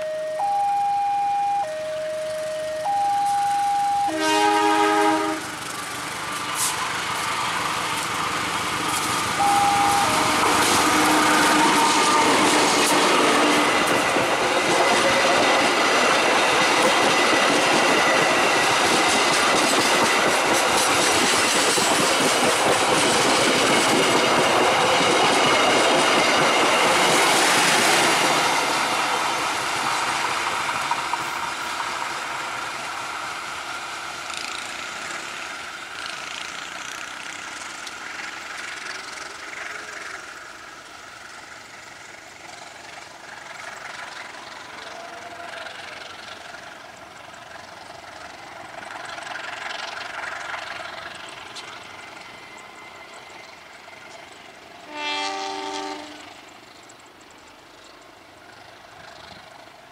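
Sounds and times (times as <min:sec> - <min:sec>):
steady warning tone: 0:00.0 - 0:05.5, 0:09.4 - 0:18.7
train rumbling past: 0:00.0 - 0:59.9
train horn blast: 0:03.7 - 0:05.6, 0:09.4 - 0:13.9, 0:54.8 - 0:56.4
wheels clattering over rail joints: 0:05.4 - 0:32.8, 0:34.2 - 0:54.8.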